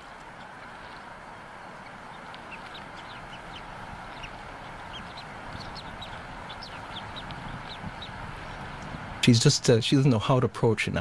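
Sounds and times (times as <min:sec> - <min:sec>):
chick peeping: 0:01.7 - 0:08.9
wind rushing: 0:03.2 - 0:09.4.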